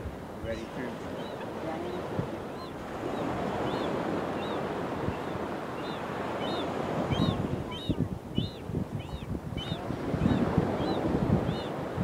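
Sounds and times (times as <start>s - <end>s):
ocean surf: 0.0s - 12.0s
wind noise: 6.4s - 12.0s.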